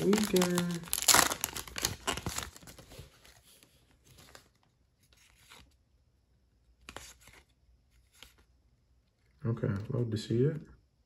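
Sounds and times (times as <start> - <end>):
foil wrapper crinkling: 0.0 - 3.4
cards rustling: 0.0 - 5.8, 6.8 - 8.5.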